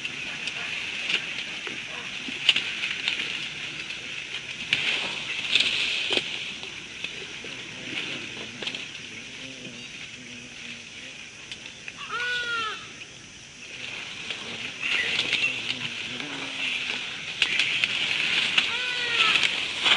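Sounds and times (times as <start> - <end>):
twigs snapping: 0.0 - 7.2, 14.3 - 19.9
high-pitched hiss: 2.6 - 19.9.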